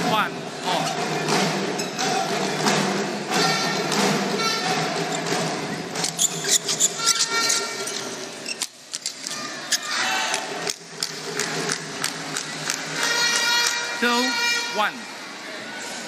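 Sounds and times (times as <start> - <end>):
crowd noise in hall: 0.0 - 16.0
shoe squeaks on court: 6.0 - 10.0
rackets hitting shuttlecock: 10.3 - 13.8.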